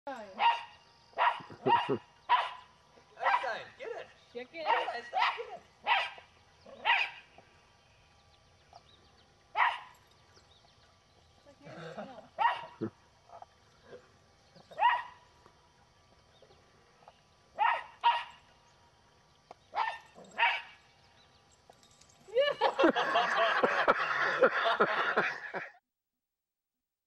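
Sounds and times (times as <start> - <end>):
small dog barking: 0.4 - 3.6, 4.6 - 7.3, 9.5 - 9.9, 12.4 - 12.9, 14.7 - 15.2, 17.6 - 18.4, 19.7 - 20.8.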